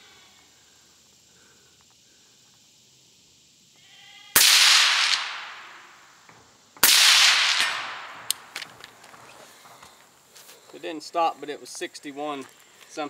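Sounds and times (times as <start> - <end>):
suppressed rifle shots: 4.4 - 5.9, 6.8 - 8.9.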